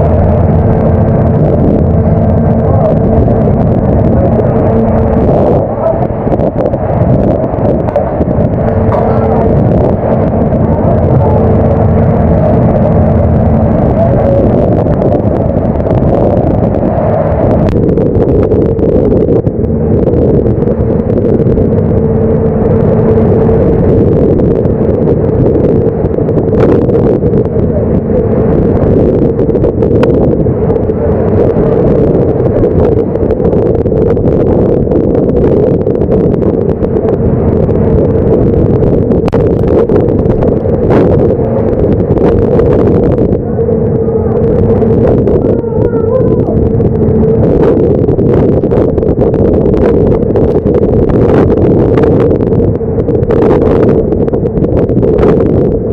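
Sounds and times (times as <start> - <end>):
machinery drone: 0.0 - 55.9.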